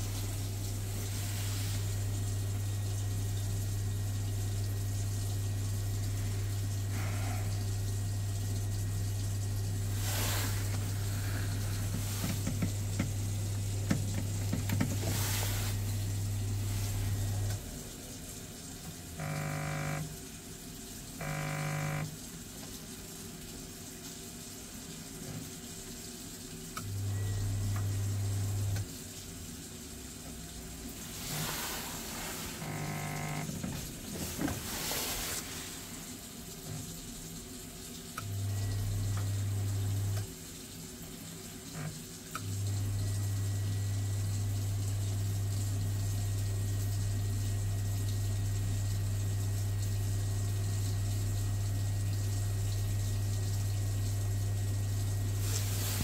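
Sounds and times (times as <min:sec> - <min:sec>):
boiler low hum: 0:00.0 - 0:56.0
short buzzes: 0:19.2 - 0:20.1, 0:21.2 - 0:22.1, 0:32.6 - 0:33.5.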